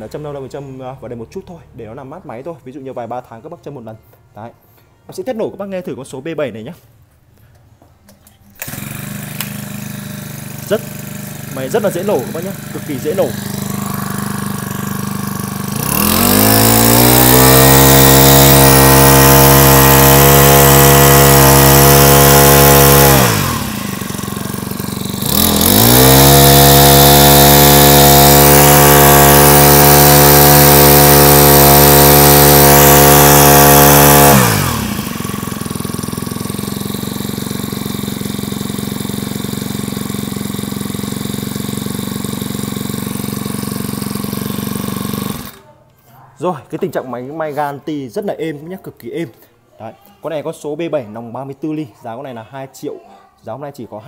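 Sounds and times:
brush cutter engine revving: 0:08.6 - 0:45.7.

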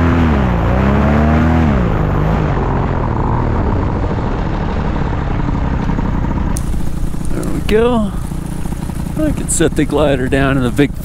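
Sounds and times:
steady rushing noise: 0:03.6 - 0:11.0
paramotor engine throttling down: 0:06.2 - 0:11.0
footsteps on dry grass: 0:06.6 - 0:09.3.

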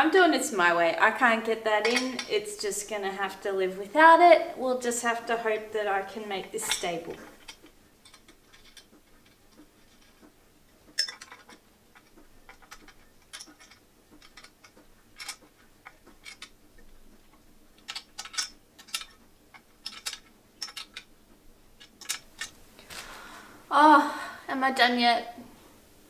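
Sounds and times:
screwdriver clicking on metal frame: 0:11.0 - 0:16.6, 0:17.8 - 0:21.1, 0:21.8 - 0:22.6.

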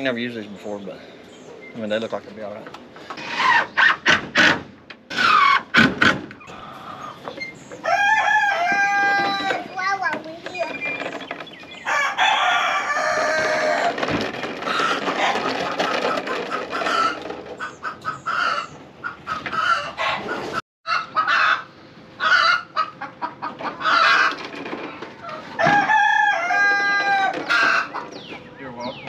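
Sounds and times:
chickens clucking: 0:06.4 - 0:29.0
rooster crowing: 0:07.8 - 0:09.6, 0:11.8 - 0:14.0, 0:25.5 - 0:28.0.

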